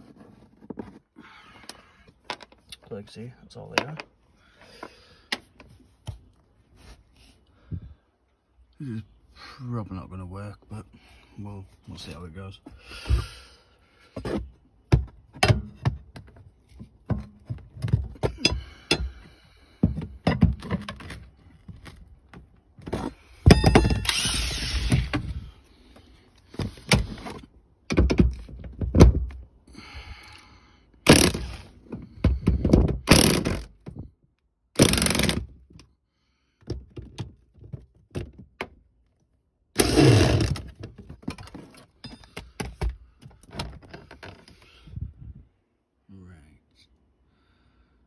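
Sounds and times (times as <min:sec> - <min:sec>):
impact wrench hammering: 0:31.1 - 0:31.6, 0:33.1 - 0:33.6, 0:34.8 - 0:35.4.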